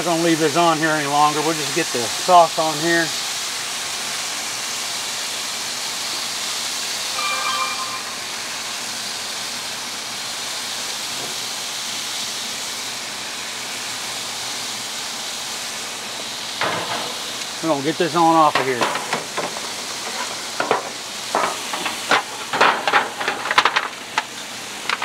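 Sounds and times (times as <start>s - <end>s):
chicken sizzling on grill: 0.0s - 25.0s
short high tone: 7.1s - 9.0s.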